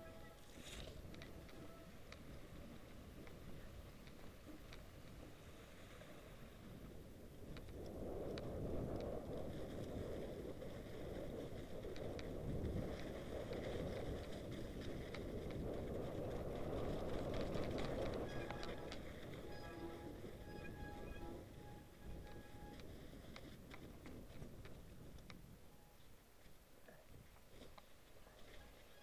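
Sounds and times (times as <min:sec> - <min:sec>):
bike tyres rolling through snow: 0:00.0 - 0:29.0
bike clicks and rattles: 0:07.4 - 0:20.4.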